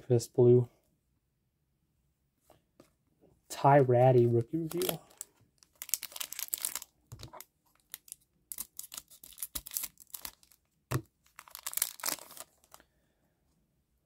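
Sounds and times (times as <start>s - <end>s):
foil wrapper crinkling: 4.6s - 10.7s, 11.3s - 12.8s.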